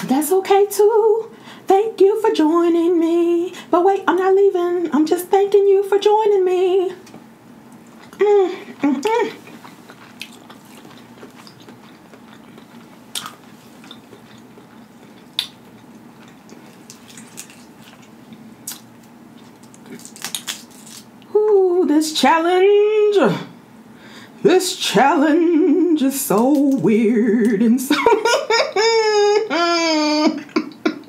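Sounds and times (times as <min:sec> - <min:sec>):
woman singing: 0:00.0 - 0:07.0, 0:24.4 - 0:28.0
quiet chewing: 0:07.0 - 0:21.0
crab shells cracking: 0:09.9 - 0:21.1.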